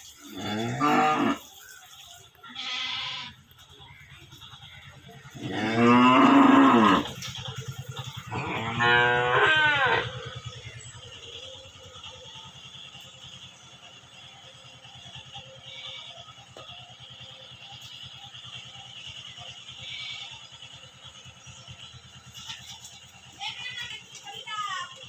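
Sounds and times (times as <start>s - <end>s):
low steady hum: 0.0s - 25.0s
calf mooing: 0.3s - 1.5s, 2.5s - 3.4s, 5.3s - 7.2s, 8.2s - 10.4s, 19.8s - 20.3s.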